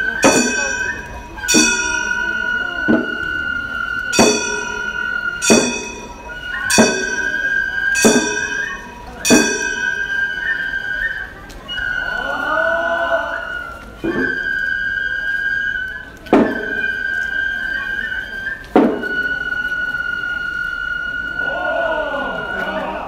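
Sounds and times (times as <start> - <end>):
hand gongs ringing: 0.0 - 3.5, 4.1 - 10.4
bamboo flute high note: 0.0 - 23.0.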